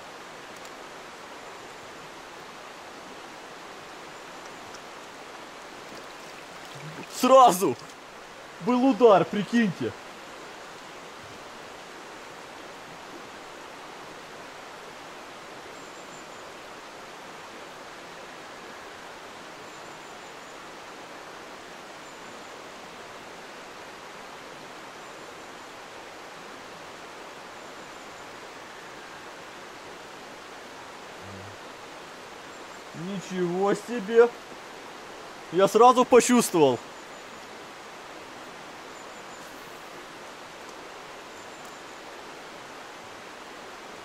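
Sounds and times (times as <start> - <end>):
mountain stream rushing: 0.0 - 44.0.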